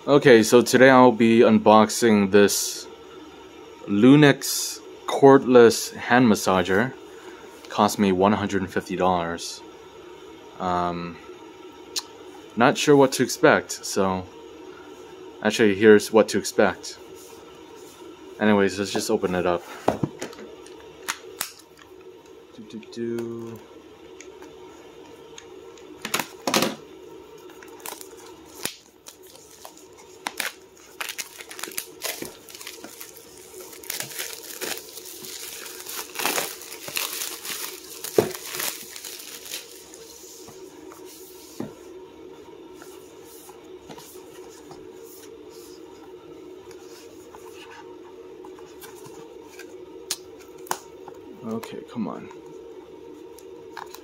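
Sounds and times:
plastic shrink wrap tearing and crinkling: 27.7 - 40.0.

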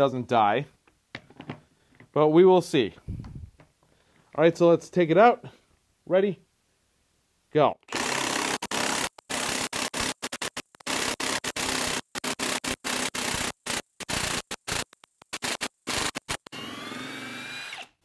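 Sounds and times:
impact wrench hammering: 7.9 - 16.6.

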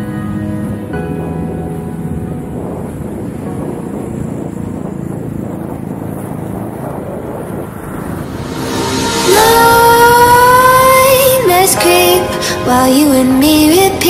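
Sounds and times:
skate wheels rolling on asphalt: 0.3 - 8.6
wind on microphone: 0.6 - 14.0.

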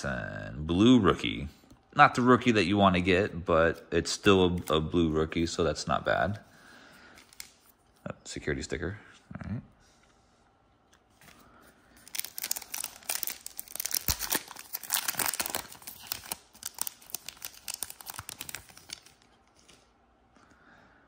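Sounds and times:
foil wrapper crinkling and tearing: 12.0 - 19.9.

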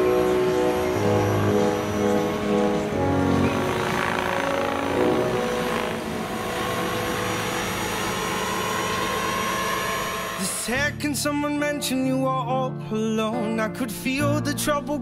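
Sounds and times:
model helicopter flying: 0.0 - 10.9.

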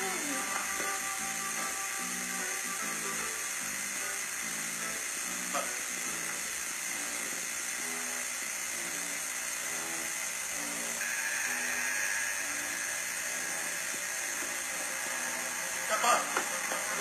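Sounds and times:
recording hiss: 0.0 - 7.2, 10.6 - 17.0.

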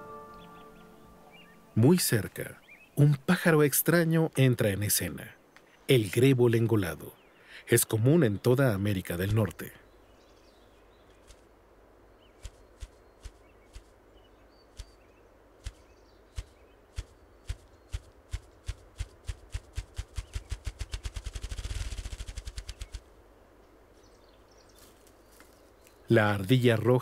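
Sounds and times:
grouse wing-beat drumming: 15.6 - 23.0.

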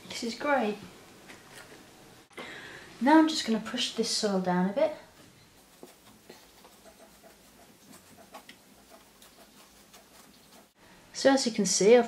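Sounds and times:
fingertip poking compost: 5.6 - 10.8.

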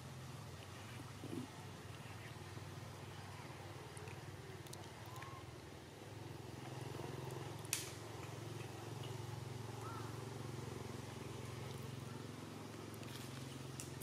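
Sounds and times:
distant motor humming: 6.1 - 14.0.

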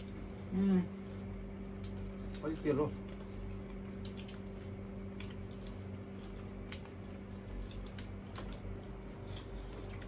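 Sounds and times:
people eating fried chicken: 0.0 - 10.0.

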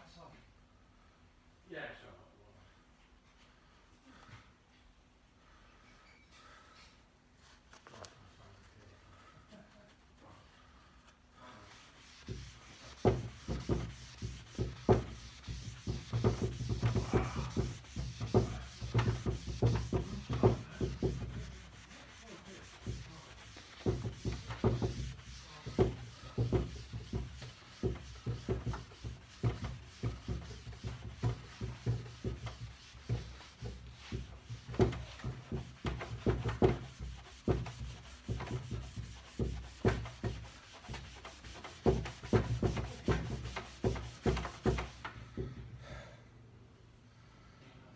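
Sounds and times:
buffing pad scuffing on wood: 10.4 - 45.1.

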